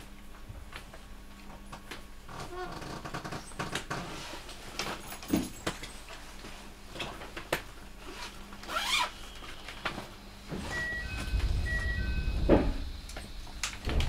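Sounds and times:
train car low hum: 10.0 - 14.0.

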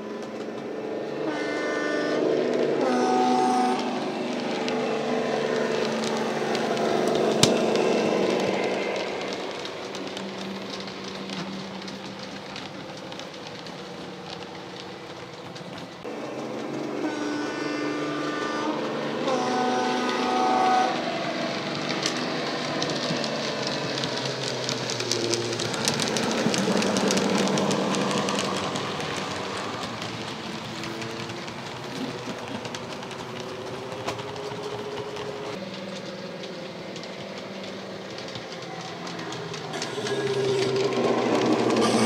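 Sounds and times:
model train engine sound: 0.0 - 42.0
wheels clicking over track: 0.0 - 42.0
two-tone train horn: 1.0 - 9.2, 16.1 - 21.4, 39.7 - 42.0.

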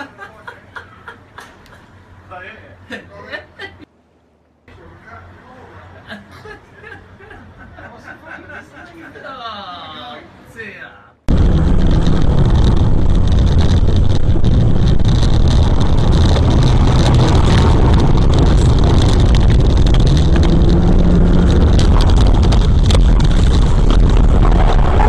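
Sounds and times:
car engine and road noise: 11.3 - 25.0
wind buffeting through car window: 11.3 - 25.0.

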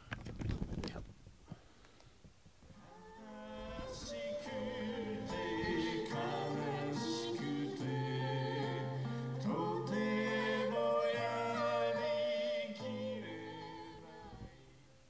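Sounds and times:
acoustic guitar: 2.8 - 15.0
man singing: 2.9 - 14.2.

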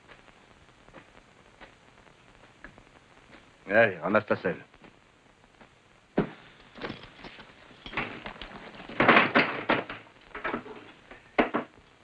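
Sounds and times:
clatter of thuds: 6.2 - 11.7.

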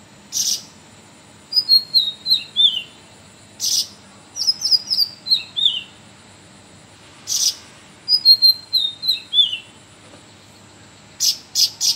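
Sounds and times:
bird singing whistled phrases: 1.5 - 3.0, 3.6 - 6.0, 7.4 - 9.7.

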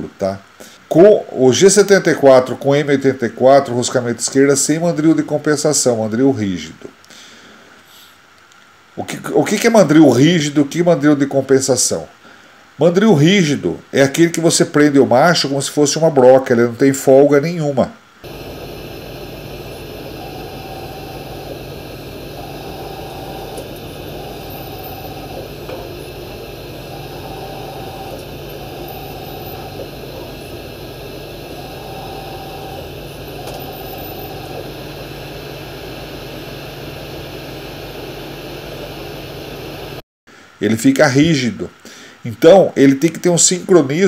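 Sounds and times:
machine hum and hiss: 18.0 - 40.6
spindle whine: 18.2 - 40.0.

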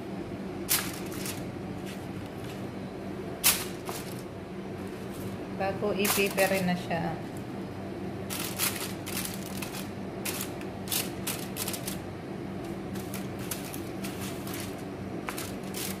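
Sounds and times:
steady low hum: 0.0 - 16.0
aluminium foil crinkling: 0.7 - 1.5, 3.4 - 4.3, 6.0 - 6.9, 8.3 - 12.1, 12.7 - 16.0.

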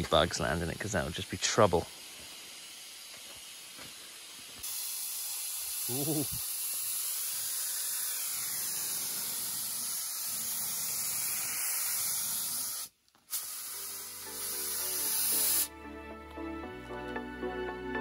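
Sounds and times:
spray gun hissing: 0.0 - 15.7
background music: 13.8 - 18.0.

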